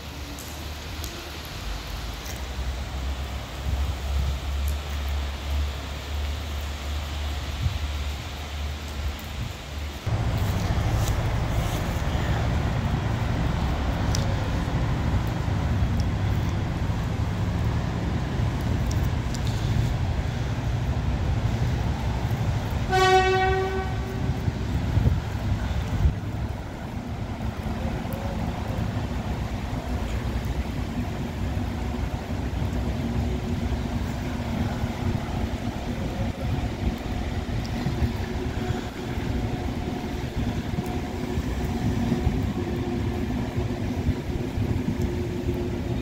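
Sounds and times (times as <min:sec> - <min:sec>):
diesel train engines idling: 0:10.0 - 0:46.0
faint engine hum: 0:10.1 - 0:22.8.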